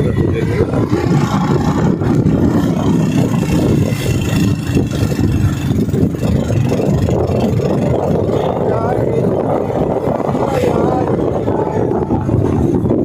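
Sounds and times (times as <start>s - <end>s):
vehicle engine and road rumble: 0.0s - 13.0s.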